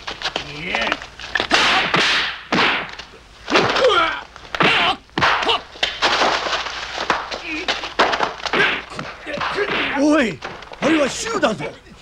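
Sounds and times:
punch impacts: 0:01.5 - 0:10.3.

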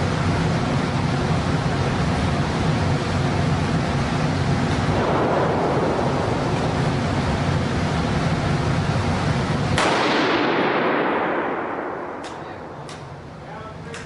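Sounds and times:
steady rushing noise: 0:00.0 - 0:13.9
rifle shot echoing indoors: 0:04.8 - 0:07.3, 0:09.8 - 0:12.8.

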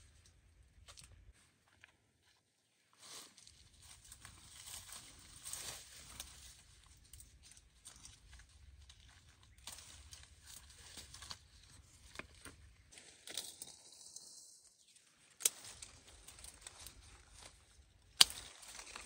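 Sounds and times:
rustling of leaves and branches: 0:02.8 - 0:19.0
small snaps of picked fruit: 0:18.2 - 0:19.0.

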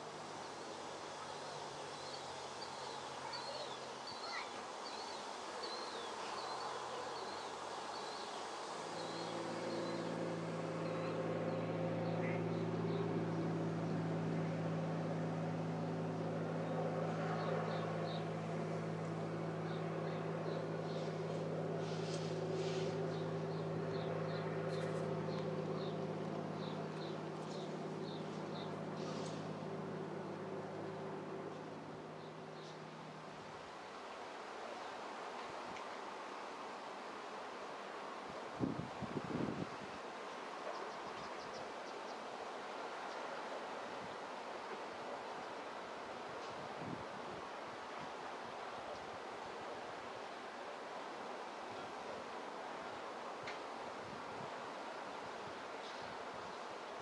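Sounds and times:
small plane engine droning: 0:06.7 - 0:34.0.

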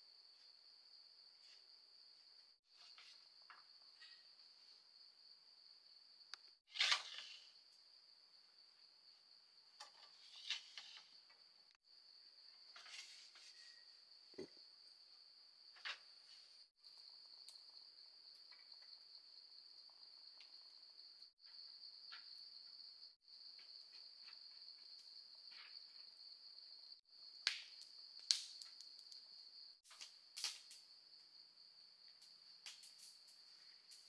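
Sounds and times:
insects trilling: 0:06.0 - 0:34.0.

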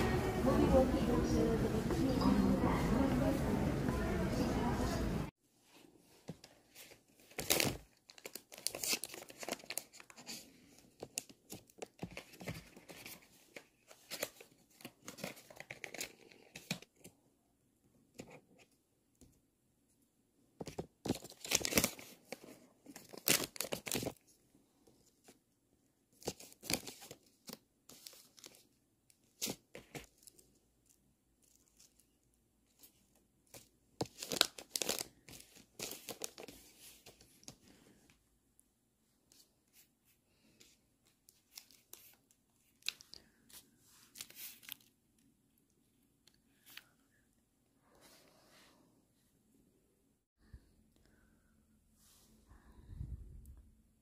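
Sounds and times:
plastic and foil packaging crinkling: 0:06.8 - 0:16.9, 0:21.0 - 0:24.2, 0:32.8 - 0:37.2, 0:41.3 - 0:45.0.

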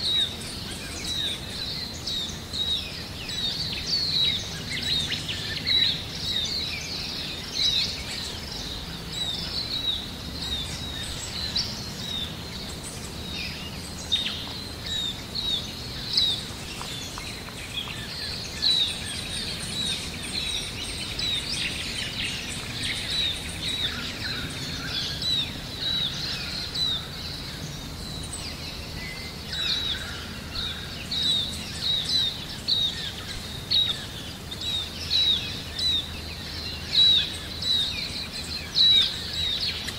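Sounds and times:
low background noise: 0:00.0 - 0:39.9
small birds chirping: 0:00.0 - 0:39.9.

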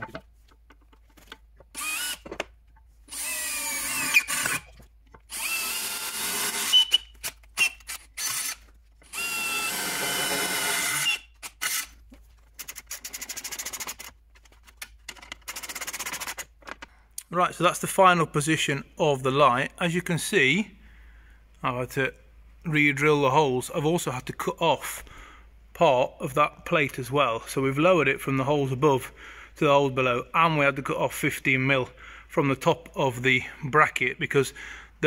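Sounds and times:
cordless drill drilling steel: 0:01.7 - 0:02.2, 0:03.1 - 0:04.7, 0:05.3 - 0:11.9.

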